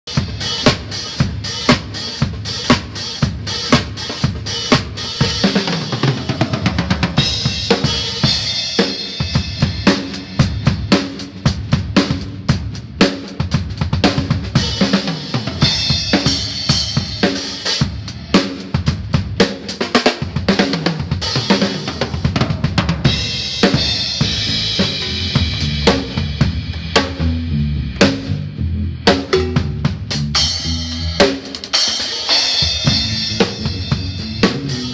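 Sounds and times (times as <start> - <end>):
drum kit playing rock beat: 0.0 - 34.9
electric guitar playing: 23.4 - 31.4.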